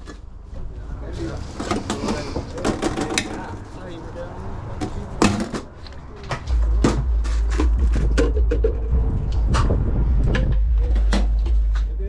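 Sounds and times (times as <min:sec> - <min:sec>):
steady low rumble: 0:05.8 - 0:12.0.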